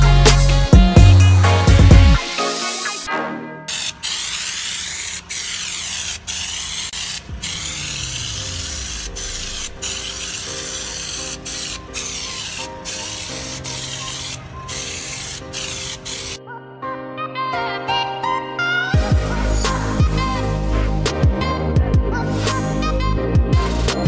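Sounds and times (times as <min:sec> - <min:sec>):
spray gun hissing: 0:03.7 - 0:16.4.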